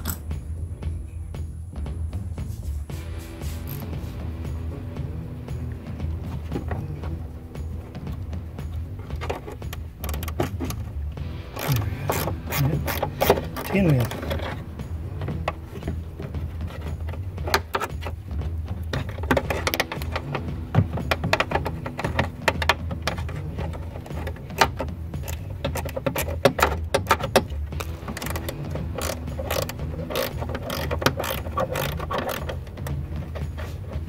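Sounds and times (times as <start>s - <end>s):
metallic clicks of hand tools: 0.0s - 0.4s, 11.5s - 18.2s, 18.9s - 33.9s
steady low hum: 0.0s - 34.0s.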